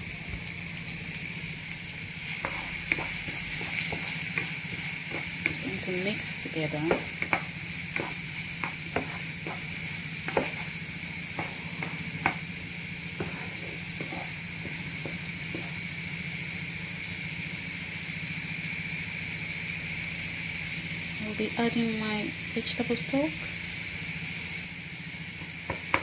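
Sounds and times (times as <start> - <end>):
vegetables sizzling in hot oil: 0.0 - 26.0
wooden spatula tapping a pan: 2.4 - 12.6, 13.2 - 15.8, 25.4 - 26.0.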